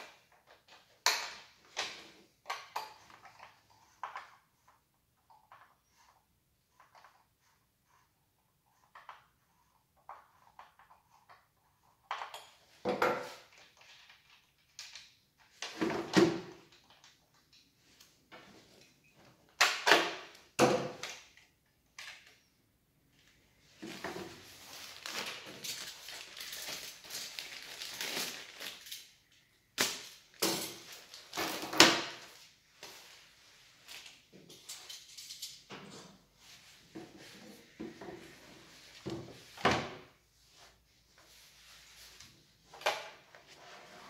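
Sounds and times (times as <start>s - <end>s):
rustling: 23.1s - 29.1s
sharp crinkles: 24.5s - 29.1s.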